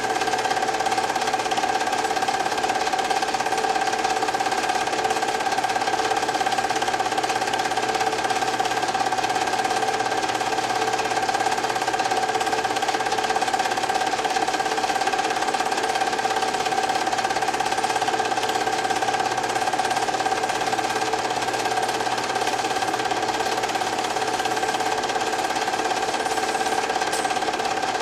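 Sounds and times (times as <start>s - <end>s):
film advance clatter: 0.0s - 28.0s
film projector whirring: 0.0s - 28.0s.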